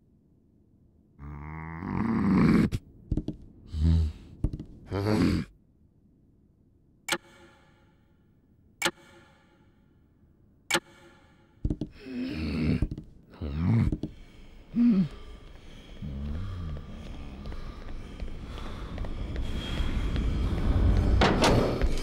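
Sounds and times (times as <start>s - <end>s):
cartoon character grunting: 4.9s - 5.5s
sharp ringing clicks: 8.8s - 9.4s.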